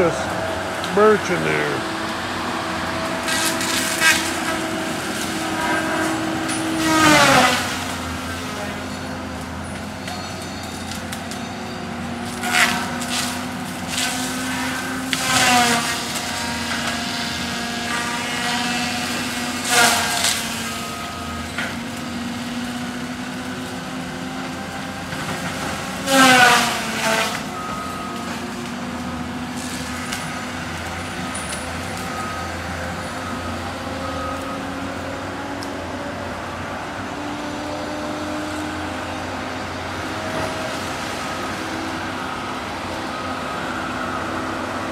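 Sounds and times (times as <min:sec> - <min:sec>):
saw cutting into tree: 0:00.0 - 0:09.1, 0:12.2 - 0:34.0
saw head whining: 0:00.0 - 0:36.1
heavy machine running: 0:00.0 - 0:44.9.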